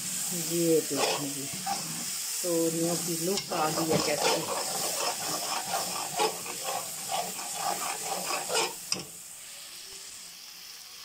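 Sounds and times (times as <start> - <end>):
curry sizzling in oil: 0.0 - 11.0
metal spoon scraping a pan: 0.7 - 2.3, 2.9 - 9.2.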